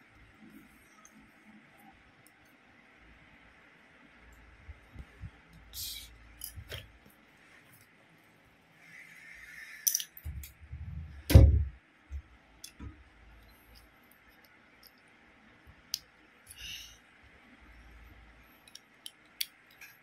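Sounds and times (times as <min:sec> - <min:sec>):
plastic bricks clicking: 0:09.8 - 0:10.6.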